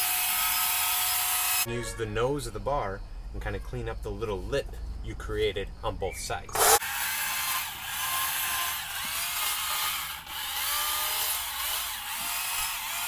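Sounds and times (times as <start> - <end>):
chainsaw cutting wood: 0.0 - 1.7, 6.6 - 13.0.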